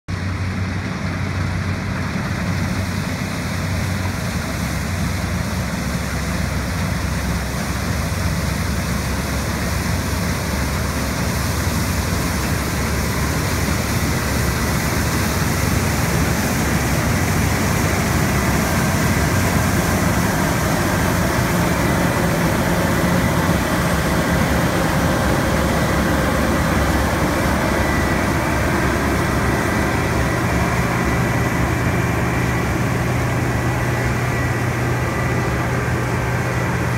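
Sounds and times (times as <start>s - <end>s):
combine harvester engine droning: 0.1s - 36.9s
thin whine: 9.8s - 36.9s.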